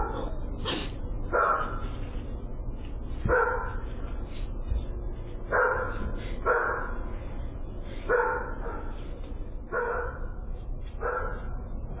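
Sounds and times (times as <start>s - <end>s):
dog barking: 1.3s - 1.8s, 3.3s - 3.9s, 5.5s - 7.0s, 8.1s - 9.0s, 9.7s - 10.4s, 11.0s - 11.6s.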